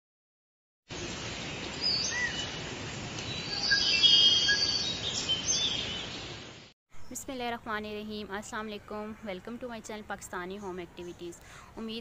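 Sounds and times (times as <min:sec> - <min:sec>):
forest background hiss: 0:00.9 - 0:10.8
birds chirping and whistling: 0:01.6 - 0:02.6, 0:03.2 - 0:06.4.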